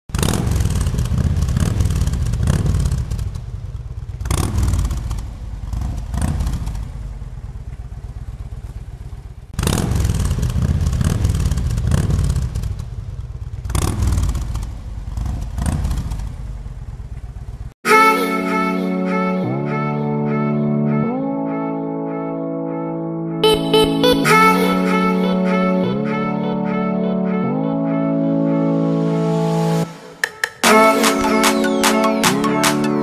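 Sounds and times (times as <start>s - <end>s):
motorcycle engine revving: 0.1s - 17.8s.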